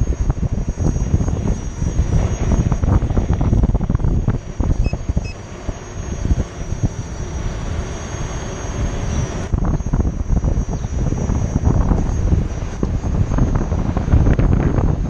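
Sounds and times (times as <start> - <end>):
wind buffeting microphone: 0.0 - 15.0
short high beeps: 4.8 - 5.4.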